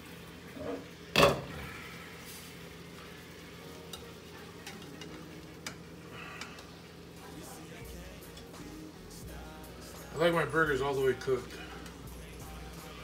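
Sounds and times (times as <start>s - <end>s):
burger patties sizzling in a pan: 0.0s - 13.0s.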